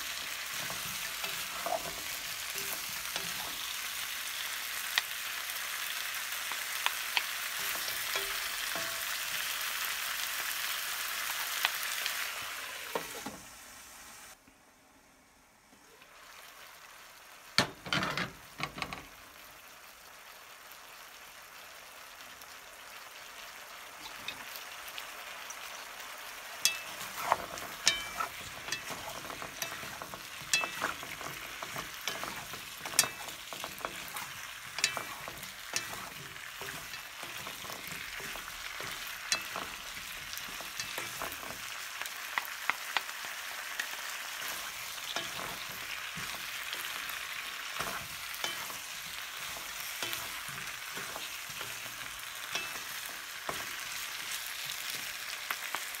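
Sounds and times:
spatula scraping a pan: 0:00.0 - 0:04.0, 0:26.6 - 0:41.8, 0:44.3 - 0:55.0
vegetables sizzling in a pan: 0:00.0 - 0:14.4, 0:15.7 - 0:56.0.

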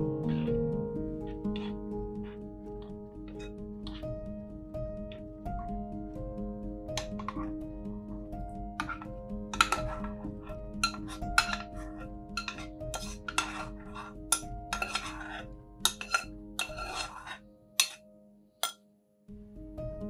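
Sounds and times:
spoon scraping saucepan: 0:08.8 - 0:18.0.

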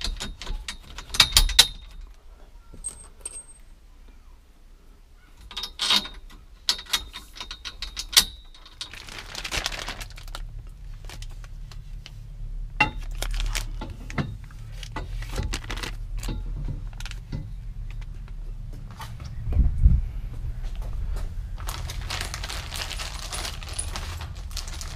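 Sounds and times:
metal parts clinking: 0:00.0 - 0:02.2, 0:02.8 - 0:03.8, 0:05.4 - 0:09.5, 0:21.6 - 0:24.9
low handling rumble: 0:08.9 - 0:24.9
rustle: 0:21.2 - 0:24.9.

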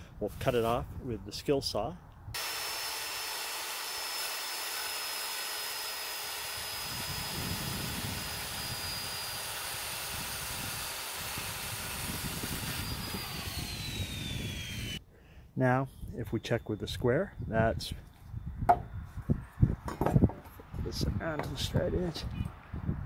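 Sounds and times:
circular saw cutting wood: 0:02.4 - 0:15.0.

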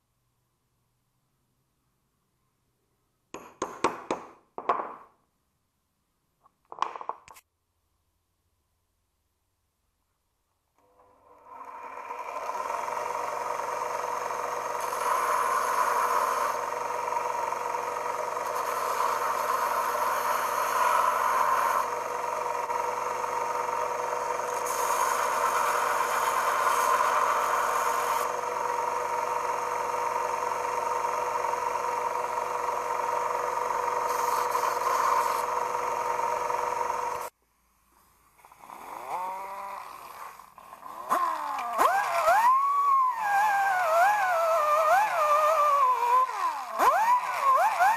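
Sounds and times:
grinder motor whine: 0:10.8 - 0:37.3, 0:38.4 - 0:47.9.

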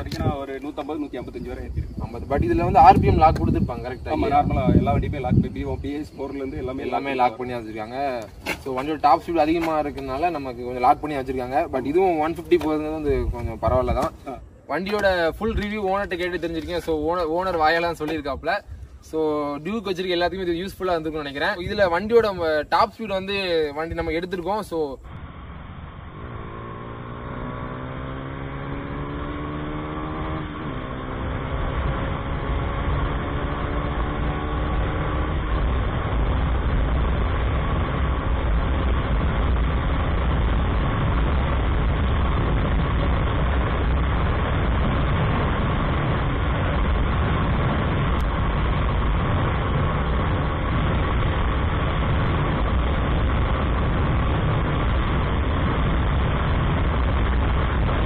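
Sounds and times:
wind rush on microphone: 0:00.0 - 0:14.4, 0:28.0 - 0:58.0
motorcycle engine accelerating: 0:25.1 - 0:58.0.

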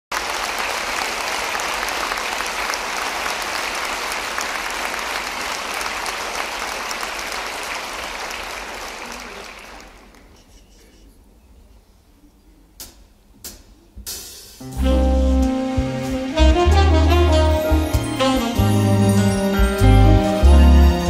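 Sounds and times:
audience applauding: 0:00.1 - 0:10.5.

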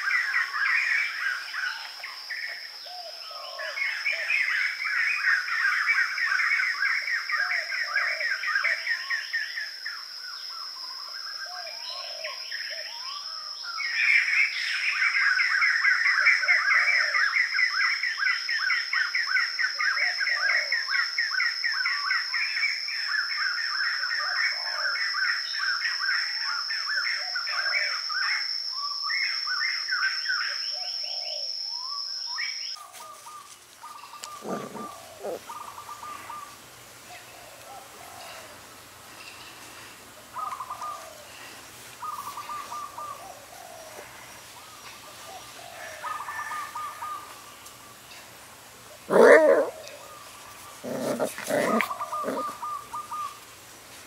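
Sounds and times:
lower bird calls: 0:23.1 - 0:53.5
birds chirping: 0:32.7 - 0:53.5.

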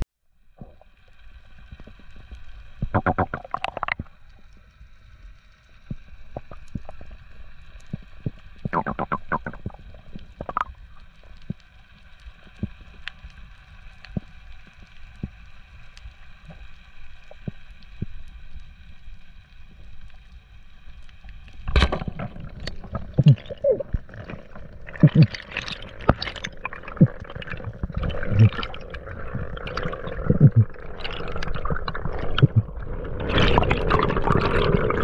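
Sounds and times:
underwater rumble: 0:00.2 - 0:35.0
sharp clicks and crackles: 0:00.6 - 0:35.0
rushing gurgling water: 0:02.8 - 0:04.4, 0:06.2 - 0:11.4, 0:21.6 - 0:35.0.

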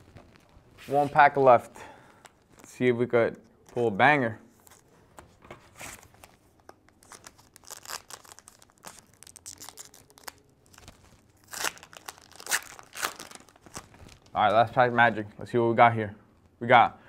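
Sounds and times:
wrapper crinkling and tearing: 0:00.0 - 0:00.8, 0:05.9 - 0:14.5.

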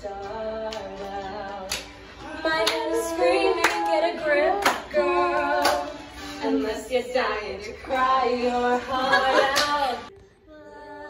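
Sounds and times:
woman singing pop song: 0:00.0 - 0:11.0
hand claps on the beat: 0:00.2 - 0:06.0.

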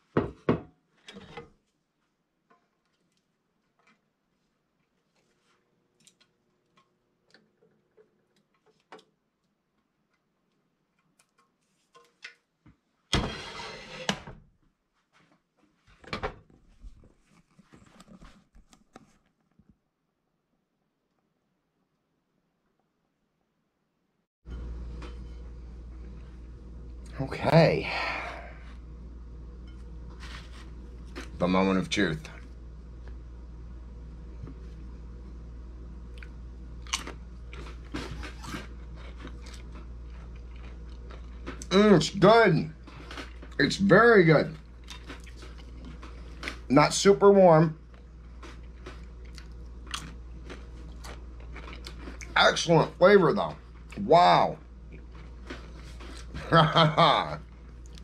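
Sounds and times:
steady low hum: 0:24.5 - 0:58.0
chip crunching: 0:36.1 - 0:41.8, 0:44.6 - 0:46.7, 0:47.8 - 0:52.6.

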